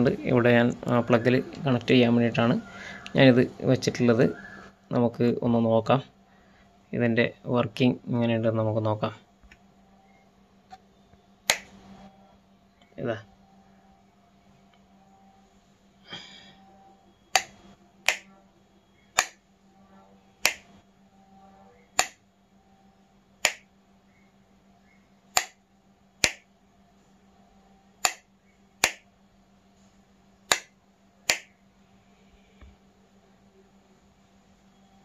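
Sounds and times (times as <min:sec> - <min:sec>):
wall switch clicking: 0:11.4 - 0:11.7, 0:17.3 - 0:18.3, 0:19.2 - 0:19.4, 0:20.4 - 0:20.7, 0:22.0 - 0:22.2, 0:23.4 - 0:23.7, 0:25.3 - 0:25.6, 0:26.2 - 0:26.5, 0:28.0 - 0:29.0, 0:30.5 - 0:31.5.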